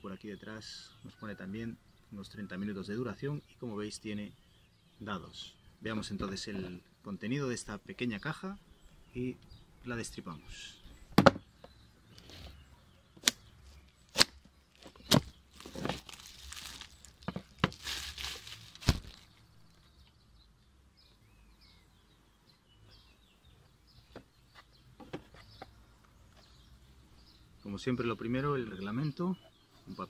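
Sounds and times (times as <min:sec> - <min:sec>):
plastic film crinkling and tearing: 0:14.1 - 0:19.3.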